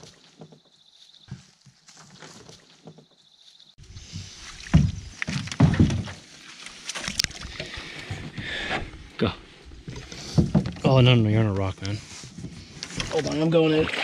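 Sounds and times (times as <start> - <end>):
canoe thumps and knocks: 4.1 - 6.2, 9.9 - 11.1.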